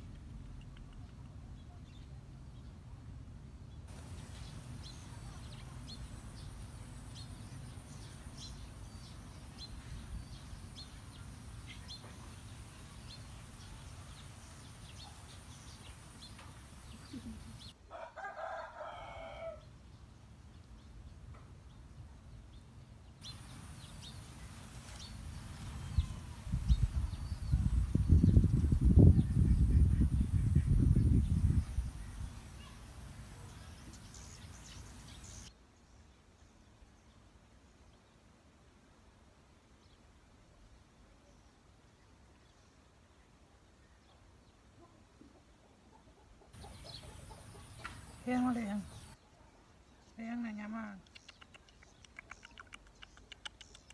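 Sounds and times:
rooster crowing: 0:17.9 - 0:19.6
faint bird chirps: 0:43.8 - 0:53.9.

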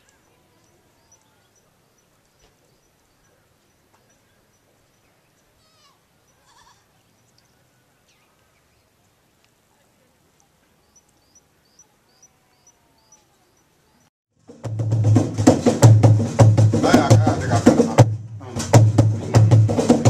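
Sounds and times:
faint outdoor ambience: 0:00.0 - 0:20.0
music with percussive beat: 0:14.4 - 0:20.0.

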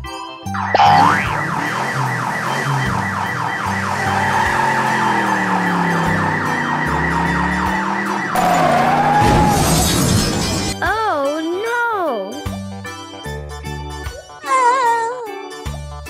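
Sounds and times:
police siren yelp: 0:00.6 - 0:10.6.

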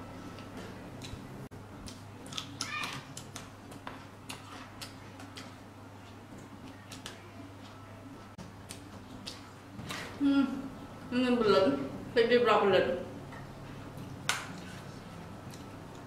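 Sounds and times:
steady low hum: 0:00.0 - 0:16.0
person chewing wetly: 0:01.8 - 0:05.6, 0:08.4 - 0:10.2, 0:14.0 - 0:16.0.

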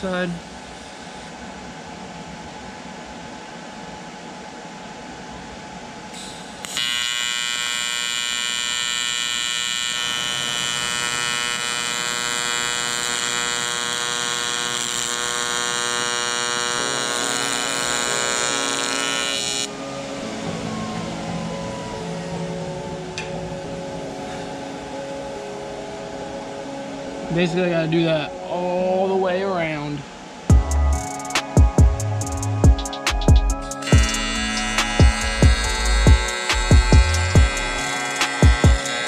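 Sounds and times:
welding arc buzzing: 0:06.2 - 0:19.8, 0:30.5 - 0:39.0
steady whir: 0:33.2 - 0:39.0.

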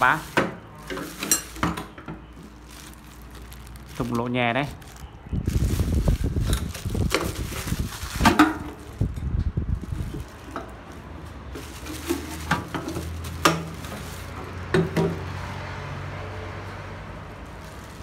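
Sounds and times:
scraping and handling noise: 0:00.0 - 0:15.4, 0:17.3 - 0:18.0.

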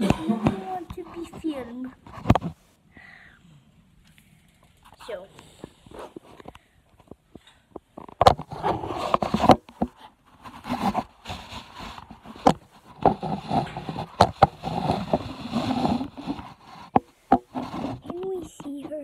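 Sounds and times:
phone handling scraping: 0:08.0 - 0:18.2.

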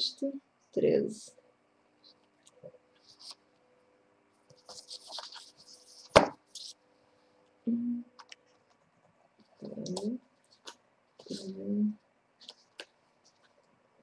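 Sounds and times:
paper rustling on a table: 0:03.0 - 0:03.4, 0:04.5 - 0:06.8.

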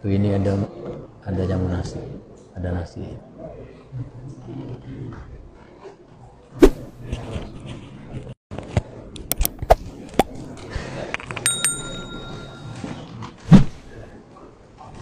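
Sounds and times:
short ringing tone: 0:11.4 - 0:13.1.

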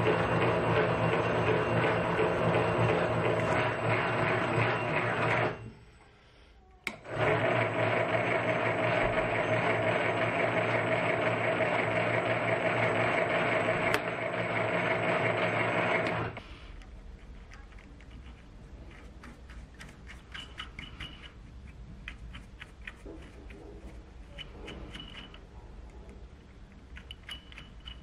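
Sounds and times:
lathe motor and gear hum: 0:00.0 - 0:05.7, 0:06.9 - 0:16.4.

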